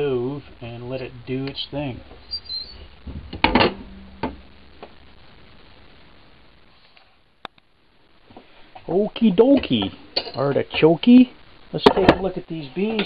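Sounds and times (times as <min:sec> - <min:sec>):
cast iron pot clanking: 0:03.0 - 0:04.5.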